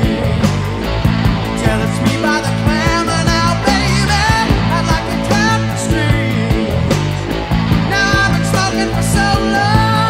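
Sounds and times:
drums: 0:00.0 - 0:10.0
electric guitar: 0:00.0 - 0:10.0
hard rock music: 0:00.0 - 0:10.0
person singing: 0:01.5 - 0:07.2, 0:07.8 - 0:10.0.

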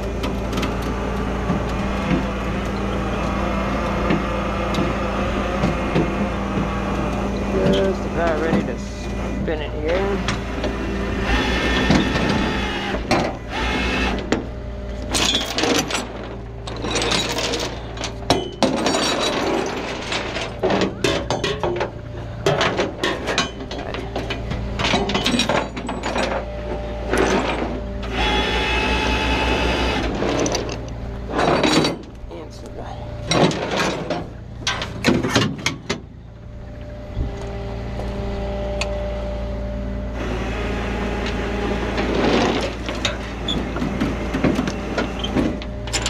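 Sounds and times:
truck engine running: 0:00.0 - 0:46.0
tow chains clanking on metal: 0:15.1 - 0:27.8, 0:30.1 - 0:35.7, 0:45.2 - 0:46.0.

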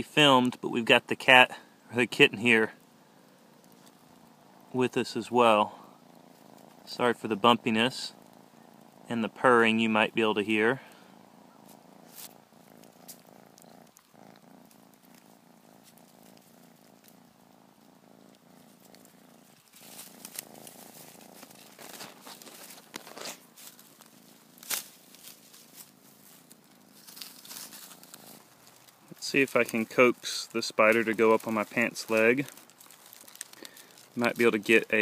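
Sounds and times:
kitten purring: 0:00.0 - 0:35.0.

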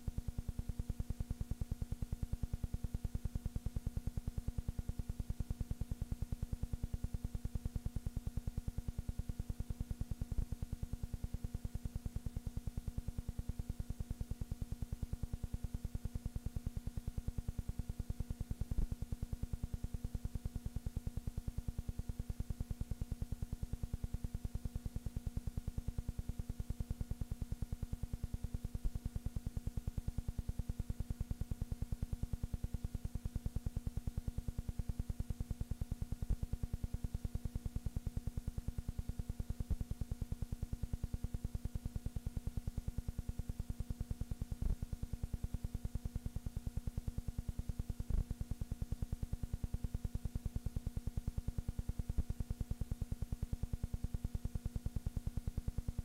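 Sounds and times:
pulsing electrical hum and buzz: 0:00.0 - 0:56.0.

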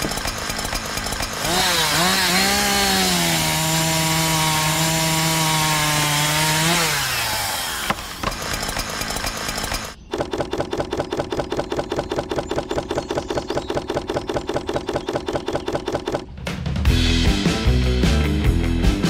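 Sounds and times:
rapid regular rattling: 0:00.0 - 0:01.6, 0:08.1 - 0:16.3.

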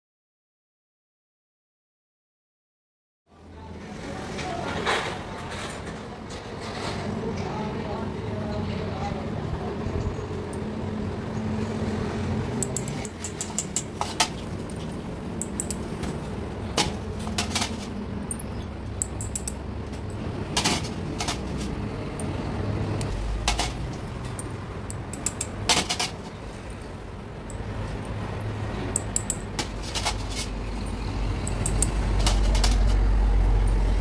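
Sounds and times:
light metal clicks and clinks: 0:18.2 - 0:20.2.

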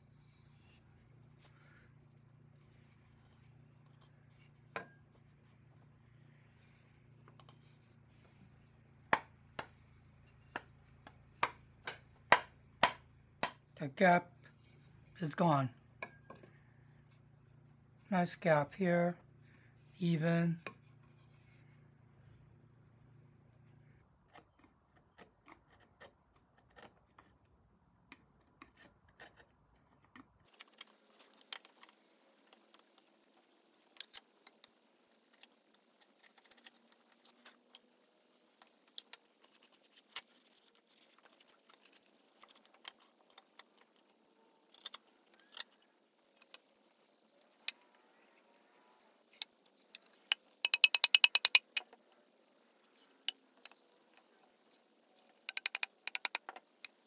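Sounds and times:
wooden parts knocking and scraping: 0:49.3 - 0:52.1, 0:55.2 - 0:57.0.

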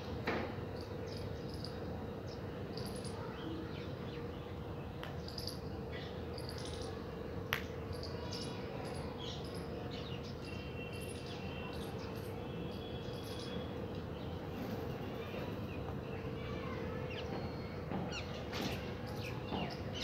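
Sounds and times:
small birds chirping: 0:09.2 - 0:20.0.

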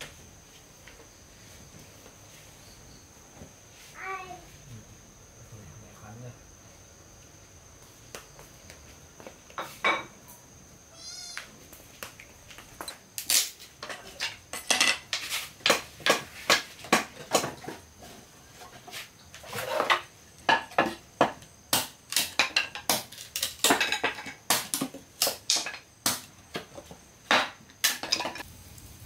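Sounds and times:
dishes and utensils clinking: 0:13.8 - 0:15.3, 0:27.4 - 0:28.4.

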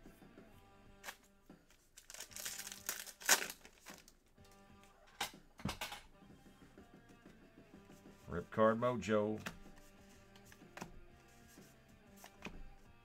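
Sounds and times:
faint background music: 0:00.0 - 0:13.0
card pack wrapper crinkling: 0:01.0 - 0:04.2
cards rustling: 0:01.0 - 0:04.6, 0:09.3 - 0:12.9.

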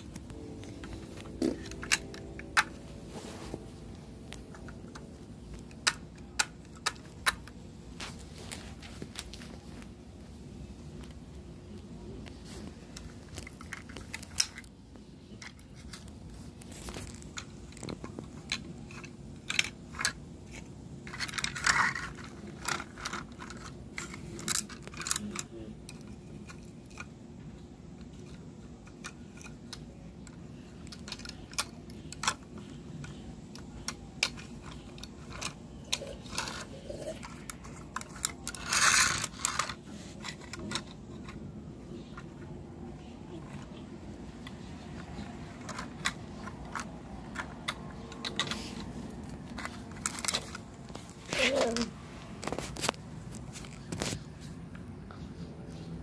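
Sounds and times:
plastic toy clicks and knocks: 0:01.2 - 0:02.8, 0:04.4 - 0:07.6, 0:13.0 - 0:14.7, 0:16.9 - 0:27.2, 0:28.0 - 0:42.5, 0:44.4 - 0:52.9
plastic toy rustling scrapes: 0:15.4 - 0:25.5, 0:34.4 - 0:42.4, 0:43.3 - 0:54.6.

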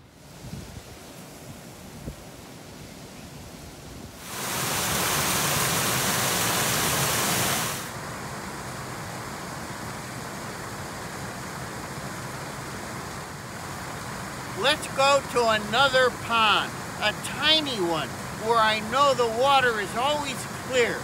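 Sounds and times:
faint steady hiss: 0:00.0 - 0:21.0
water rushing through metal grate: 0:04.2 - 0:08.4, 0:13.6 - 0:21.0.

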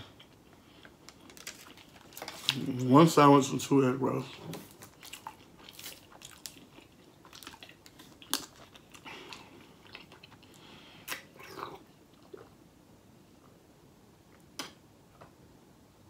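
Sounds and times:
plastic bottle crinkling: 0:01.0 - 0:02.7.

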